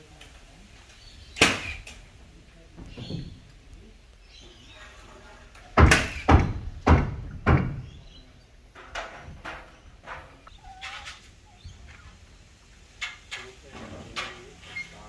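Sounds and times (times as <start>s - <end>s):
hammer striking timber: 5.8s - 7.9s.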